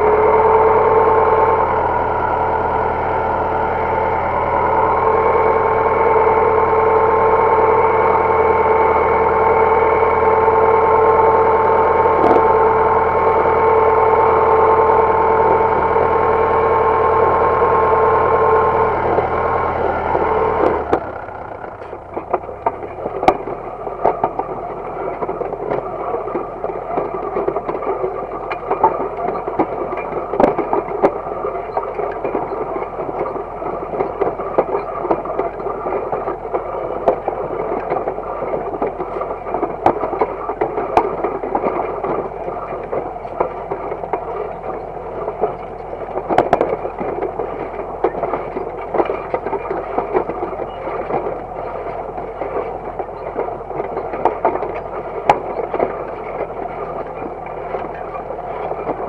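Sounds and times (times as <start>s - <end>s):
disc harrow rattling through soil: 0.0s - 59.0s
faint tractor engine running: 0.0s - 59.0s
sharp metal knocks and clicks: 21.8s - 59.0s.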